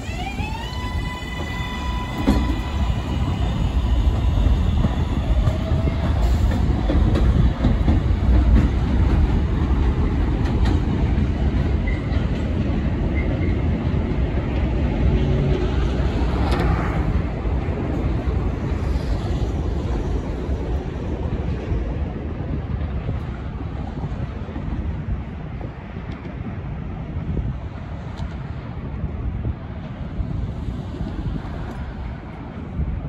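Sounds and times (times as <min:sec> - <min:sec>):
electric train motor whine: 0:00.0 - 0:06.0
train rumbling and clattering on track: 0:00.0 - 0:33.0.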